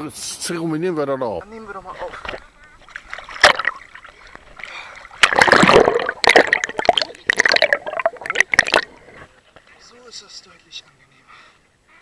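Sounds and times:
water splashing and gurgling: 0:01.8 - 0:09.2.

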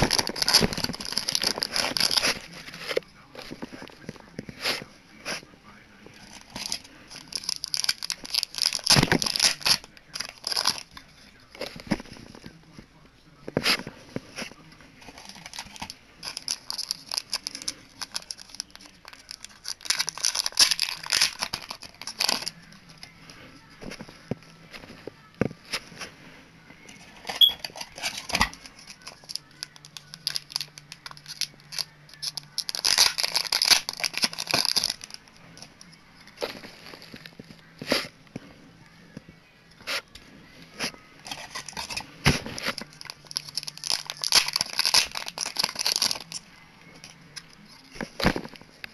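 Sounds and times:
plastic packet crinkling: 0:00.0 - 0:04.1, 0:06.2 - 0:12.2, 0:15.0 - 0:23.1, 0:27.2 - 0:37.6, 0:41.2 - 0:48.9.

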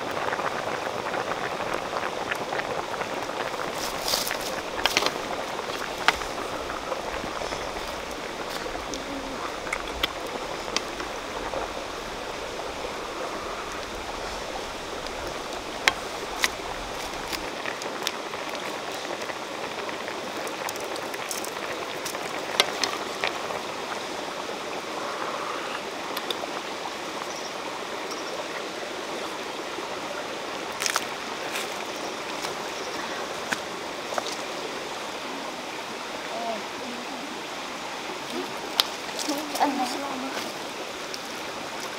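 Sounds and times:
soup boiling and bubbling in a wok: 0:00.0 - 0:32.7
stream running: 0:00.0 - 0:41.9.

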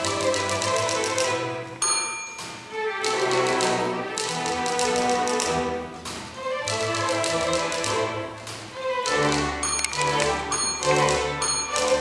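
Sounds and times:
string orchestra playing: 0:00.0 - 0:01.8, 0:02.7 - 0:12.0
typewriter bell ringing: 0:01.8 - 0:02.7, 0:09.6 - 0:12.0
typewriter key clicks: 0:09.0 - 0:12.0.

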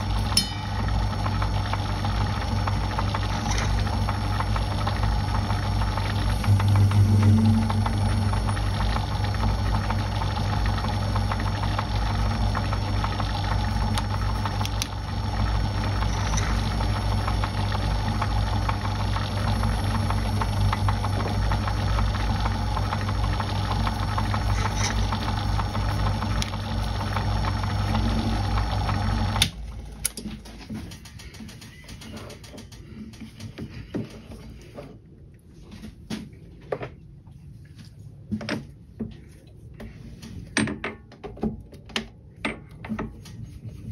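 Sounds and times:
metal lathe running: 0:00.0 - 0:29.5.

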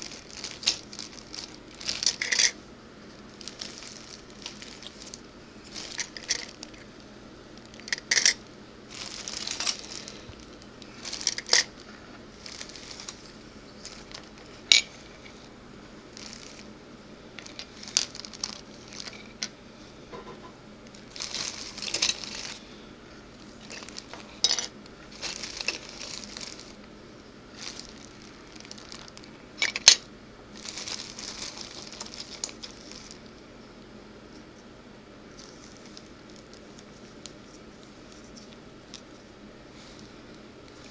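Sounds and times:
plastic model parts clattering: 0:00.0 - 0:02.6, 0:03.5 - 0:06.8, 0:07.8 - 0:08.4, 0:09.0 - 0:10.2, 0:11.0 - 0:11.7, 0:21.1 - 0:22.6, 0:23.6 - 0:26.7, 0:27.6 - 0:30.0
parts shuffling by hand: 0:00.0 - 0:16.7, 0:17.3 - 0:33.4, 0:35.3 - 0:40.9.

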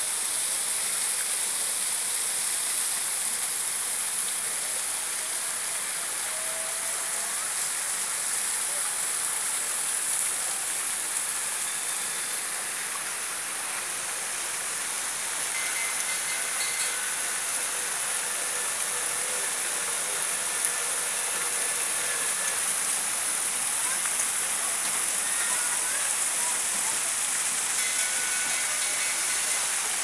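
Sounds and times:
fountain water splashing: 0:00.0 - 0:30.0.

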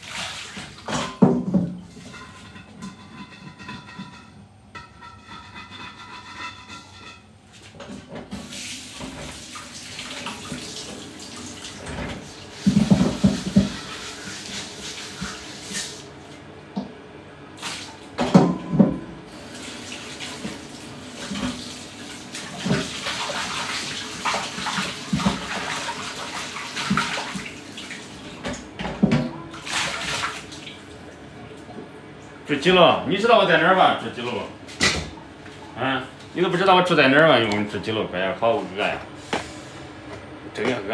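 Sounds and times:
items clattering in sink: 0:00.0 - 0:09.4, 0:11.6 - 0:15.5, 0:18.2 - 0:19.1, 0:21.2 - 0:30.6.

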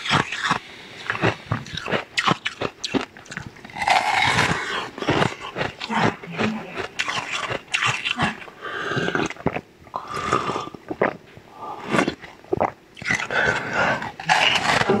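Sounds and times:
biting and crunching ice: 0:00.0 - 0:08.3, 0:14.2 - 0:15.0
chewing mouth noises: 0:00.0 - 0:11.2, 0:11.8 - 0:14.9.

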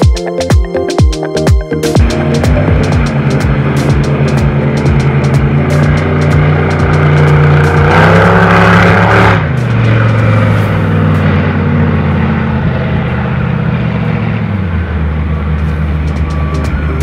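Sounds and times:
speedboat engine running hard: 0:02.0 - 0:17.0.

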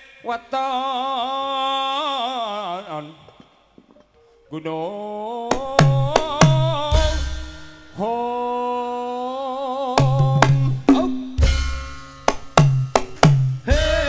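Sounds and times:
deep booming drum stroke: 0:05.6 - 0:07.7, 0:10.0 - 0:14.0
hand drum strokes: 0:10.0 - 0:13.8
person singing wavering notes: 0:13.6 - 0:14.0.

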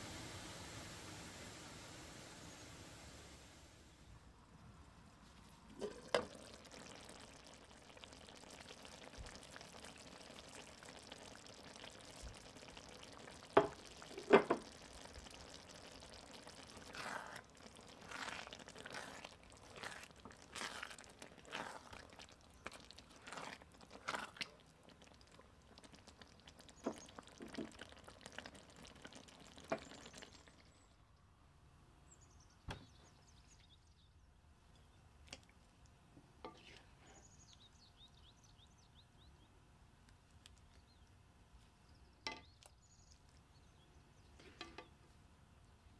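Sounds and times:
stew simmering and bubbling: 0:00.0 - 0:31.5, 0:32.8 - 0:45.9
spatula stirring and scraping pan: 0:16.0 - 0:25.4, 0:36.4 - 0:37.3.

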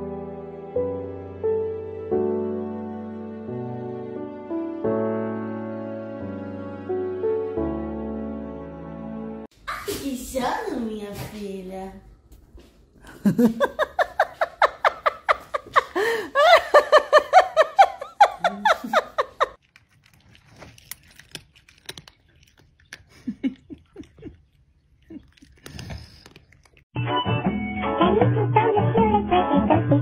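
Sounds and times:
woman giggling: 0:13.1 - 0:19.6, 0:23.1 - 0:24.5
clicks and crunches: 0:19.6 - 0:23.2, 0:25.2 - 0:26.9.

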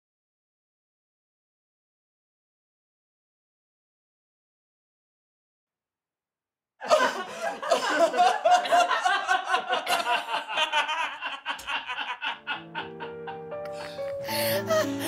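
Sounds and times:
hearty laughter: 0:06.8 - 0:15.0
music with held notes: 0:12.5 - 0:15.0.

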